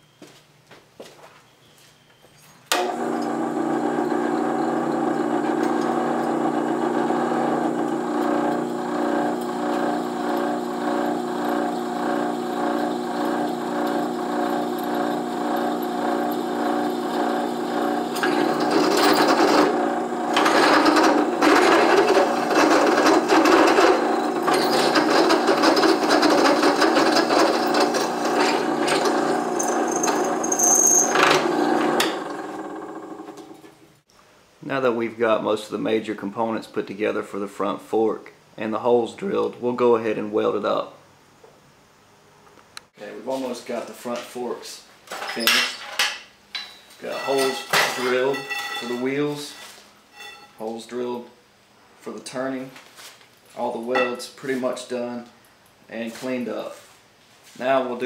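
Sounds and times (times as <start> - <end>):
drill press motor hum: 2.7 - 33.8
drill bit grinding steel: 2.8 - 33.5, 50.2 - 50.6.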